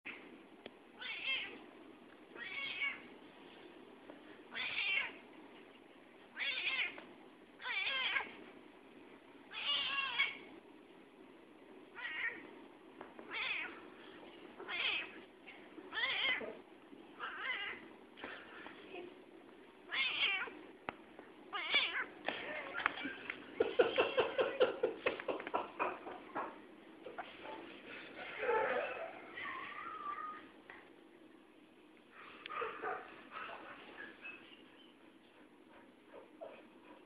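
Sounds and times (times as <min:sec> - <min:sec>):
cat meowing: 0:01.0 - 0:01.6, 0:02.4 - 0:03.1, 0:04.5 - 0:05.2, 0:06.3 - 0:07.0, 0:07.6 - 0:08.3, 0:09.5 - 0:10.4, 0:12.0 - 0:12.4, 0:13.3 - 0:13.8, 0:14.6 - 0:15.2, 0:15.9 - 0:16.6, 0:17.2 - 0:17.8, 0:19.9 - 0:20.6, 0:21.5 - 0:22.8.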